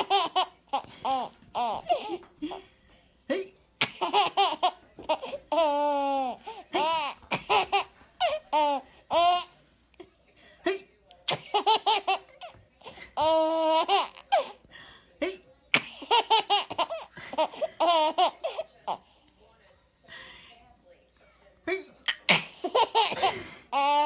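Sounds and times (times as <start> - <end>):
baby laughing: 0.0 - 2.6, 3.8 - 9.5, 11.3 - 12.6, 13.2 - 14.6, 15.8 - 19.0, 22.3 - 24.0.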